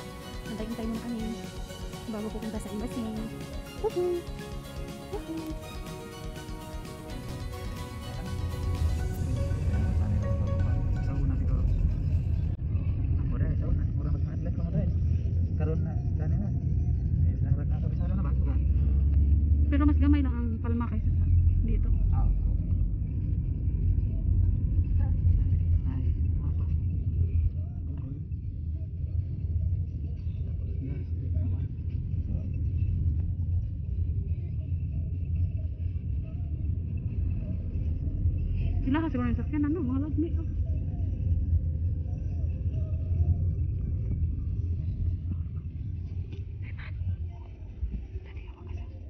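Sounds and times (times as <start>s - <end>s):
car road noise rumble: 17.2s - 28.2s.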